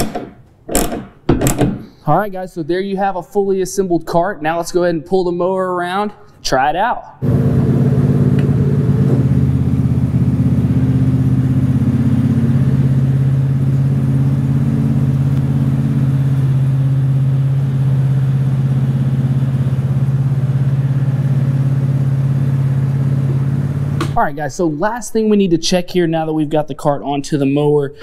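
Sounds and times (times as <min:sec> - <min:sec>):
lawn mower engine running: 0:07.2 - 0:24.2.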